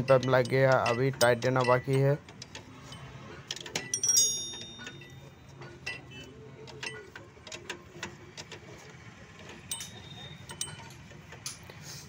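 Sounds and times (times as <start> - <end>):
wrench clicking on metal fitting: 0.0 - 2.6
ringing metal clink: 2.8 - 6.1, 9.7 - 11.7.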